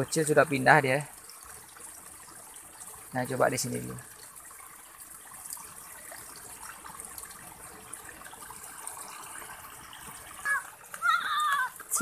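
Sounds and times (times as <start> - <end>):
water flowing over a drop: 0.0 - 12.0.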